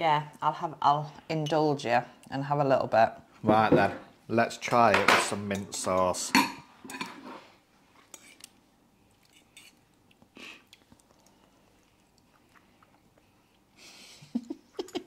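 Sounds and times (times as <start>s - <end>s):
people chewing: 8.1s - 13.8s.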